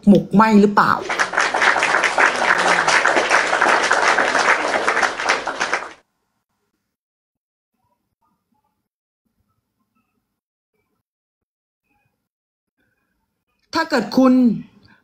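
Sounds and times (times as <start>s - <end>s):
crowd applauding: 1.0s - 6.0s.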